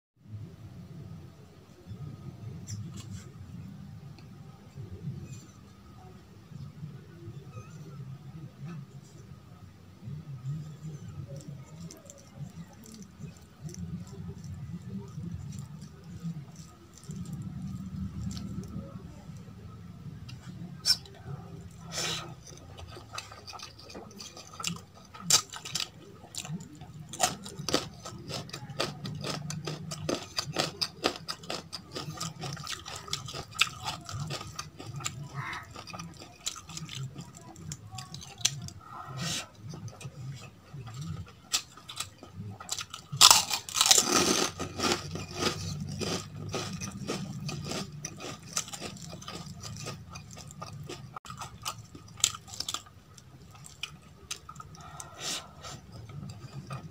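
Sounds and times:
crunching food: 0:10.4 - 0:56.9
wet mouth clicks and chewing: 0:20.2 - 0:38.8, 0:39.5 - 0:56.9.

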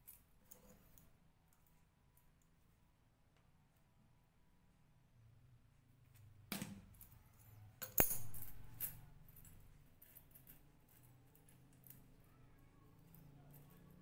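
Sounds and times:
chainmail rings clinking: 0:07.1 - 0:12.3.

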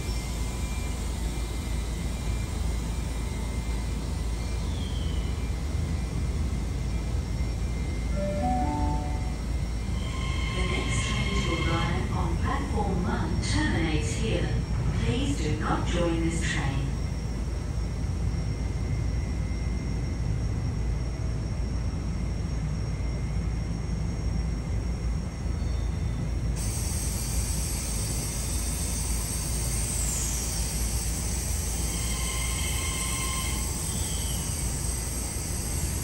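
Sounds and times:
brief falling whine: 0:08.0 - 0:12.2
train wheels rumbling on track: 0:09.0 - 0:18.6, 0:26.2 - 0:36.0
steady hiss: 0:26.6 - 0:36.0.

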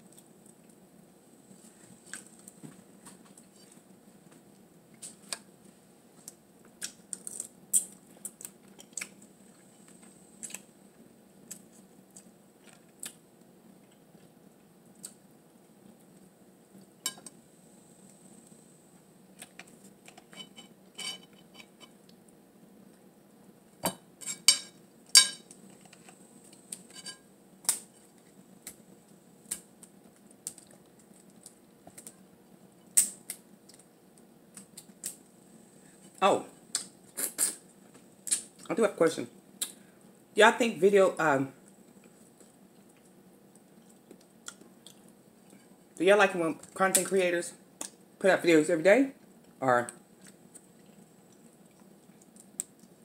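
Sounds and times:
crab shell cracking: 0:06.8 - 0:09.2.

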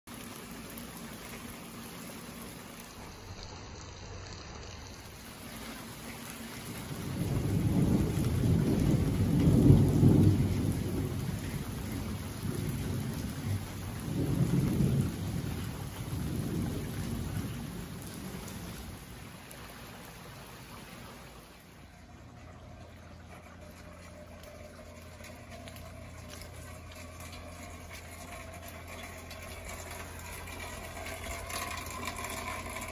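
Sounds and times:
steady rain falling: 0:00.1 - 0:32.9
thunder rolling: 0:06.5 - 0:19.5, 0:21.8 - 0:32.9.

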